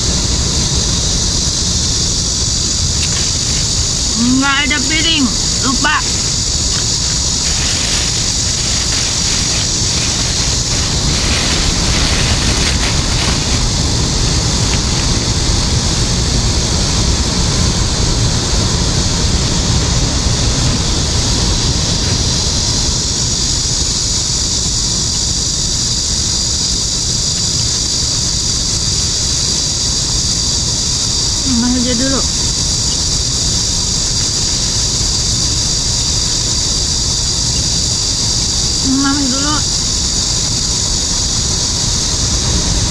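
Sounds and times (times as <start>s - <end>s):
high-pitched hiss: 0.0s - 42.9s
wind buffeting the microphone: 0.0s - 42.9s.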